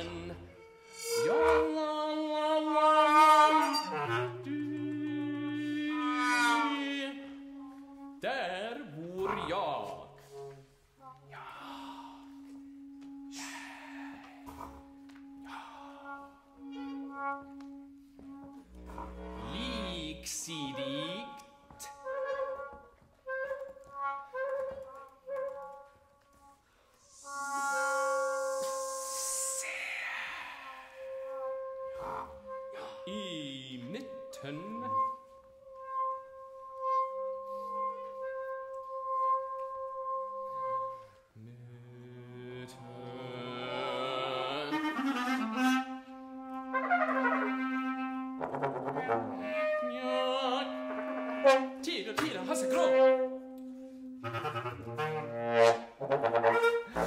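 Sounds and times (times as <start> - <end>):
held high note: 0.0 - 4.6, 10.2 - 17.3, 26.8 - 33.8
brass and clarinet chamber music: 0.0 - 29.7, 30.6 - 57.0
airy hiss: 26.9 - 31.1
low sustained note: 27.0 - 31.3.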